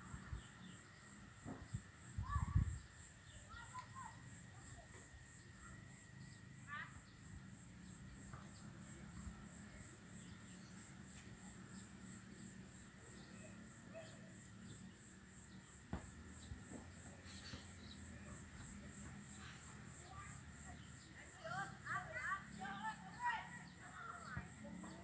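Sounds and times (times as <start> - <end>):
high-pitched insect drone: 0.0 - 25.0
faint bird chirps: 16.4 - 21.6.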